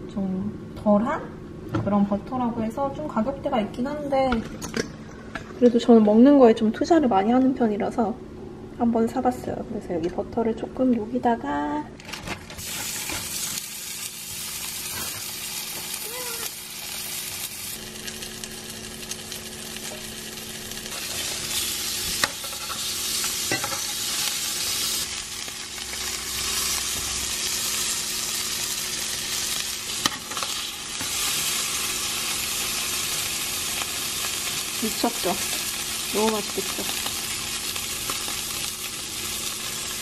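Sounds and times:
steaks sizzling in frying pan: 12.6 - 40.0.

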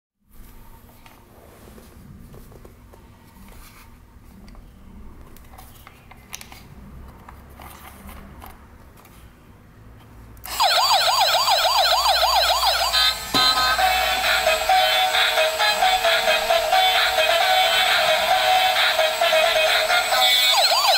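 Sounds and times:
toy siren warbling wail: 10.5 - 20.9.

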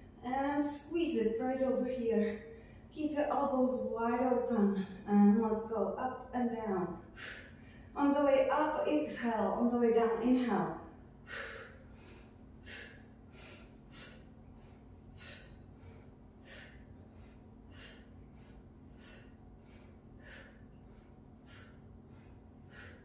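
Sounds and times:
woman breathing sharply: 2.4 - 2.9, 7.1 - 8.0, 11.2 - 23.0.

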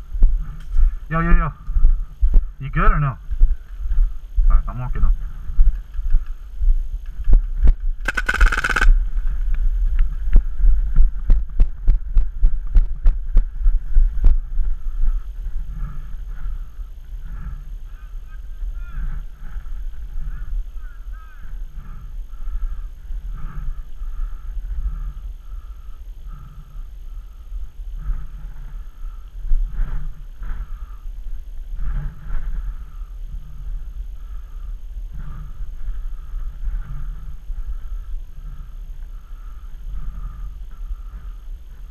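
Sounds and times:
wind on microphone: 0.0 - 41.9
paintball marker shots: 8.0 - 9.0.

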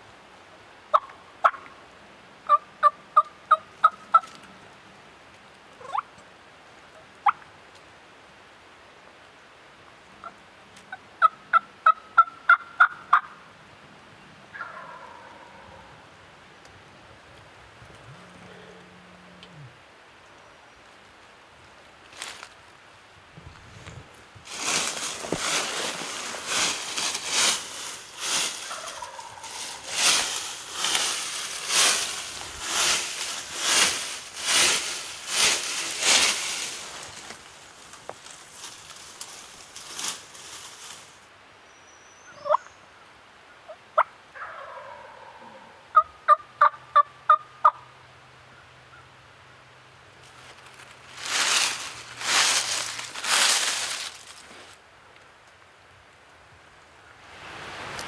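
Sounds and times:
turkey call notes: 2.5 - 4.5, 5.8 - 6.1, 10.2 - 13.4, 14.5 - 16.0, 24.6 - 37.2, 44.0 - 47.9
rustling in dry leaves: 14.5 - 41.4, 49.8 - 55.5, 56.4 - 58.0.

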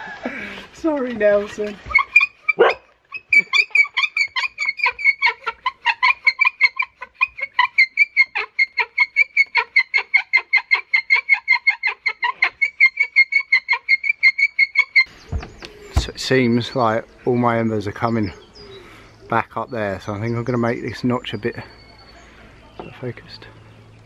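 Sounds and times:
bow drill squeaking: 0.9 - 5.5.

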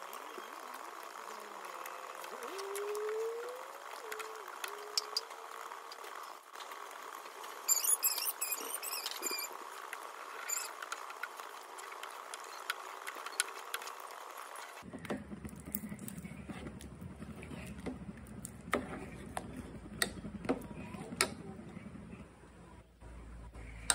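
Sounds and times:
high squeaks: 7.6 - 9.6, 10.3 - 11.1.

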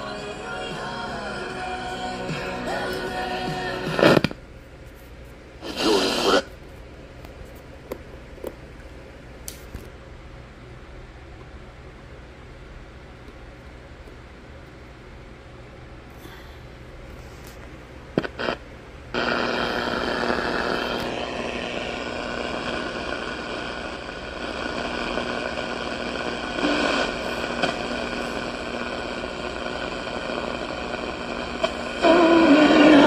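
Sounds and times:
radio static: 0.0 - 4.4, 5.6 - 6.6, 18.2 - 33.0
faint hum tones: 0.0 - 33.0.

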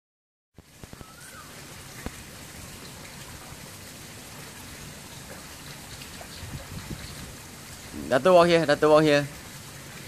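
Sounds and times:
outdoor background hiss: 0.6 - 10.0.

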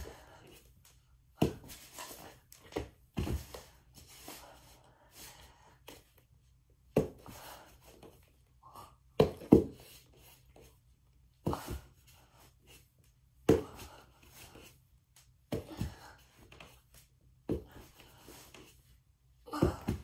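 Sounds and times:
feet thumping on floor: 1.4 - 3.7.

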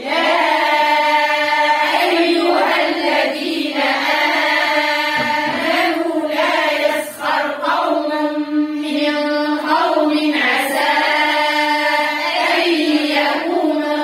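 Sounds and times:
women chanting in unison: 0.0 - 14.0.

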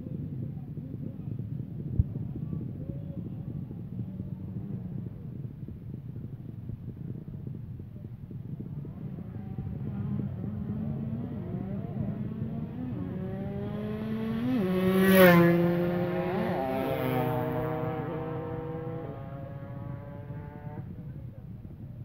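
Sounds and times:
motorcycle accelerating past: 8.8 - 20.9.

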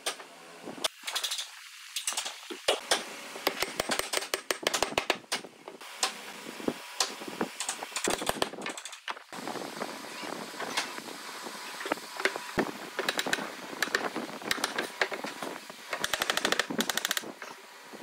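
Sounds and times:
wooden slats knocking and clacking: 2.1 - 5.8.

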